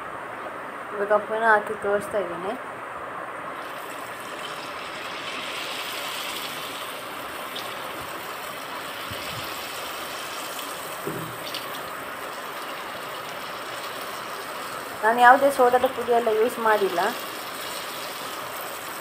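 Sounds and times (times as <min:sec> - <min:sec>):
hot oil sizzling: 0:03.6 - 0:19.0.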